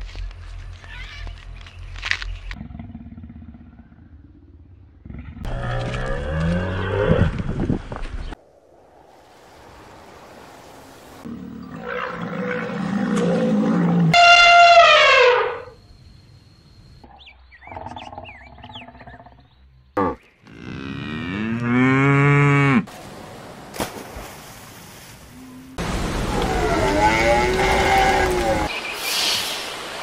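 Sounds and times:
cattle mooing: 0:20.0 - 0:22.9, 0:26.5 - 0:28.7.

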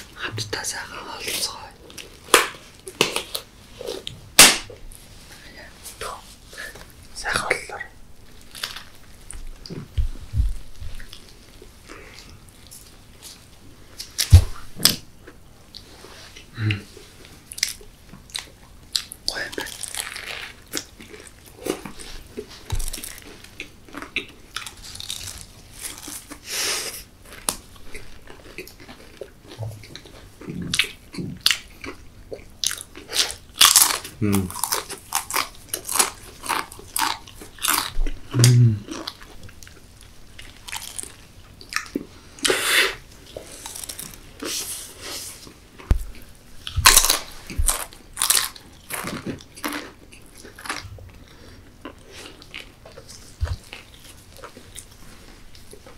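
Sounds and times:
chewing: 0:14.0 - 0:55.9
crisp crunches of chips: 0:19.3 - 0:22.1, 0:22.8 - 0:26.6, 0:32.6 - 0:39.2, 0:40.4 - 0:42.5, 0:43.4 - 0:44.9, 0:46.8 - 0:50.9.

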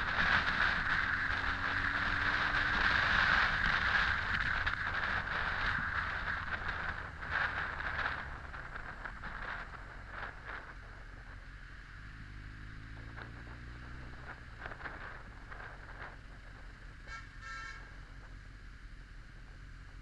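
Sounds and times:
wind rush on microphone: 0:00.0 - 0:11.7, 0:12.6 - 0:18.4.

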